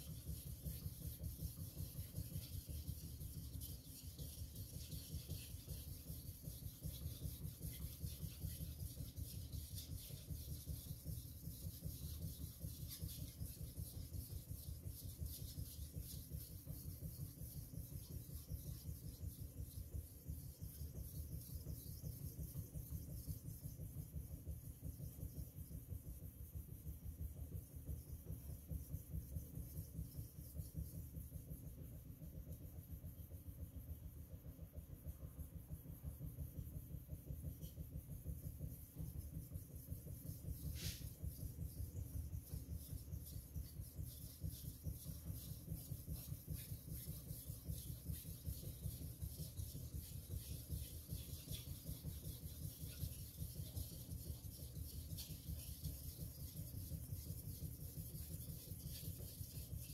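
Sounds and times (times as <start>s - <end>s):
knife rubbing on whetstone: 0.0s - 19.3s, 39.6s - 59.9s.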